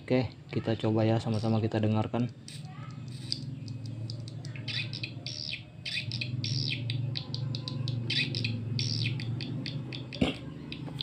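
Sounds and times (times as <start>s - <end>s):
recorded swiftlet chirps: 2.2s - 11.0s
quick clicks: 2.3s - 4.8s.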